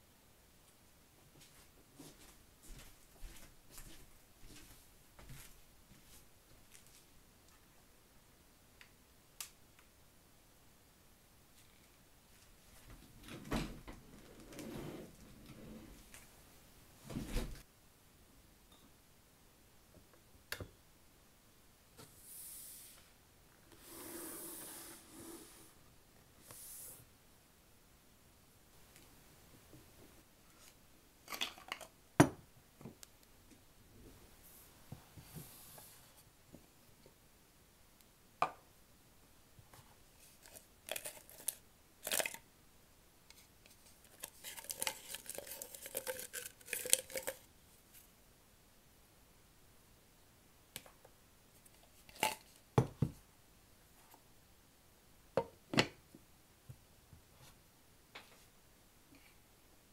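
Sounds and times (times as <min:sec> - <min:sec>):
tealight cups clattering: 0:44.1 - 0:47.4.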